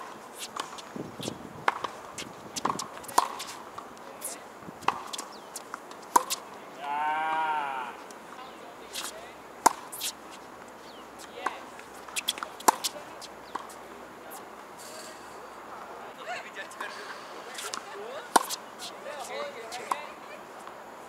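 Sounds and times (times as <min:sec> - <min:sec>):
tennis balls struck with rackets: 0:00.0 - 0:06.5, 0:08.9 - 0:14.5, 0:17.6 - 0:20.1
balls bouncing on hard court: 0:00.4 - 0:03.6, 0:06.1 - 0:06.4, 0:11.2 - 0:13.8.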